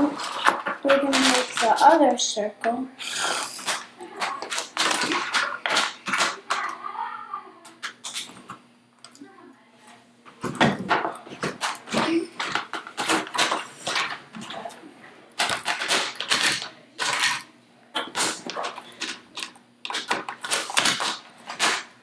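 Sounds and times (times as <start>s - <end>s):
plastic toy track pieces clacking: 0.4s - 2.0s, 18.0s - 21.9s.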